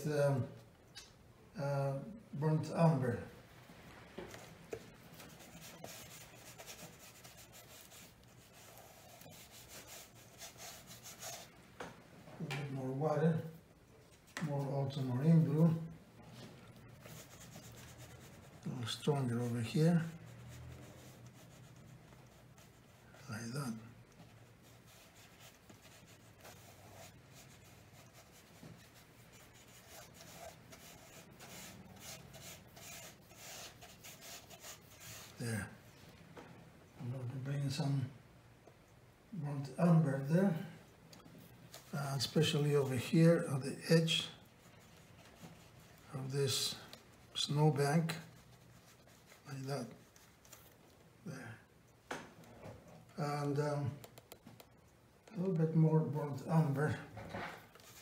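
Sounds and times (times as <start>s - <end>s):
brush rubbing on paper: 4.4s - 11.6s, 14.1s - 35.9s, 41.4s - 50.8s, 57.6s - 58.0s.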